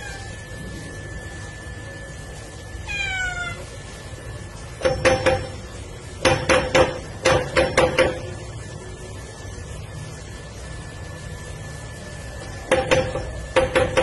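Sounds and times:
cat meowing: 0:00.0 - 0:00.4, 0:02.8 - 0:03.7.

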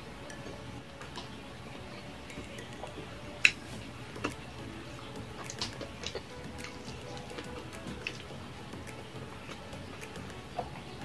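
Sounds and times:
wet chewing clicks and smacks: 0:02.2 - 0:11.0.

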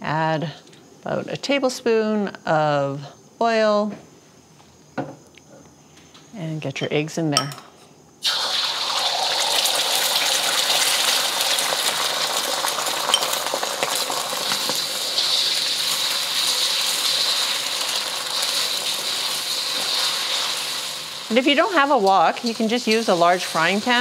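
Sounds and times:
eggs sizzling in a wok: 0:08.2 - 0:24.0.

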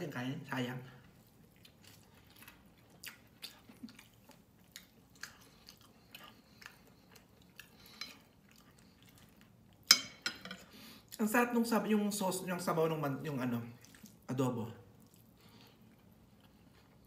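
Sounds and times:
faint chewing: 0:00.9 - 0:10.0, 0:13.7 - 0:17.0.

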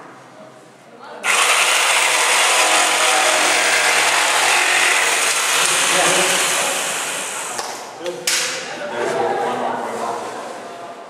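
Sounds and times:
jigsaw cutting wood: 0:01.2 - 0:07.6.

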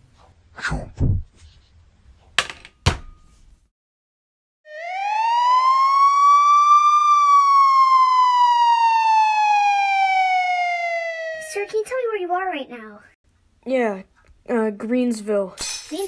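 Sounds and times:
siren wail: 0:04.7 - 0:11.8.

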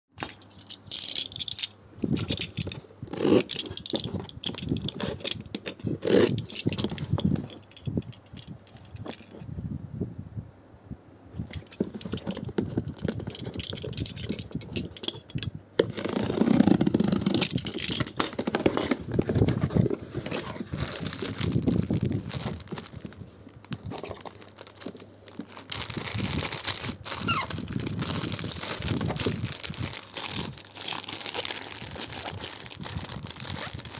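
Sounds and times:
packing tape tearing: 0:02.2 - 0:07.0, 0:15.8 - 0:33.9
plastic bag crinkling: 0:16.0 - 0:33.9
cardboard box scraping and knocking: 0:18.3 - 0:22.9.

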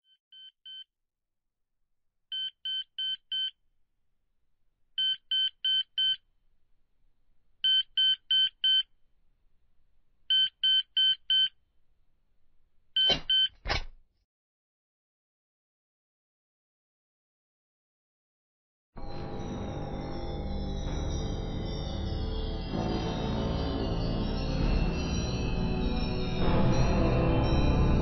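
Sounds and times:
alarm clock beeping: 0:02.3 - 0:03.5, 0:05.0 - 0:06.2, 0:07.6 - 0:08.8, 0:10.3 - 0:11.5, 0:13.0 - 0:13.5.

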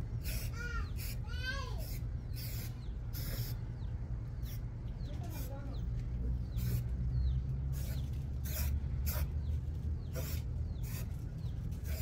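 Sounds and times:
spray paint can hissing: 0:00.2 - 0:01.2, 0:01.8 - 0:03.6, 0:04.4 - 0:04.6, 0:06.5 - 0:06.9, 0:07.7 - 0:09.4, 0:10.1 - 0:12.0.

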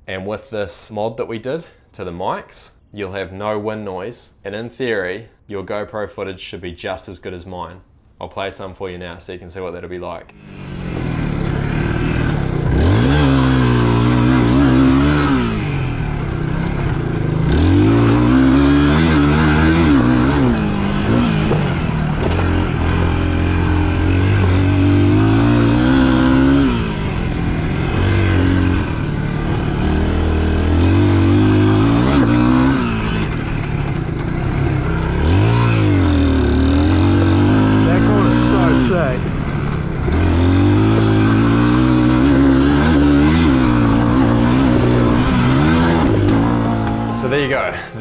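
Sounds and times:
dirt bike engine revving: 0:10.3 - 0:48.0.

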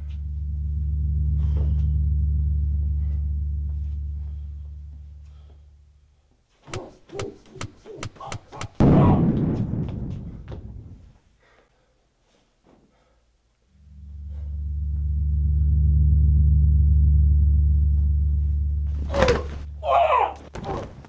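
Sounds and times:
deep low drone: 0:00.0 - 0:06.3, 0:08.8 - 0:11.1, 0:13.7 - 0:20.4
sharp slaps and knocks: 0:06.6 - 0:10.7
loud rushing impact: 0:08.8 - 0:11.1.

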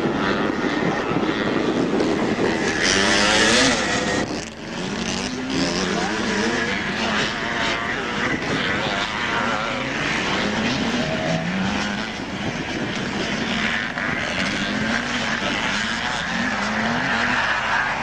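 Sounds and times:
motocross bike engines revving: 0:00.0 - 0:18.0.

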